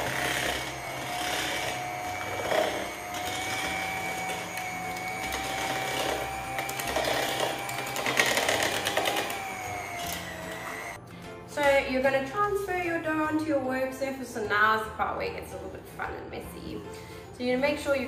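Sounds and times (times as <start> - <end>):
hand mixer motor whine: 0.0 - 11.0.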